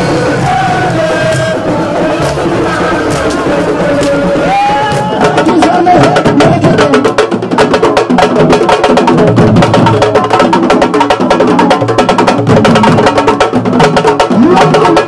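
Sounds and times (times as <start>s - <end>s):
drum ensemble playing fast rhythm: 0.0s - 15.0s.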